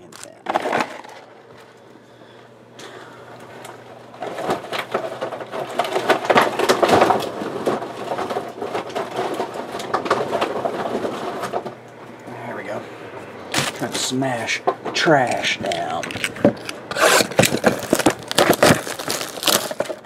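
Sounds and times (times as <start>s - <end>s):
trash crackling and crunching: 0.0s - 1.8s, 2.8s - 20.0s.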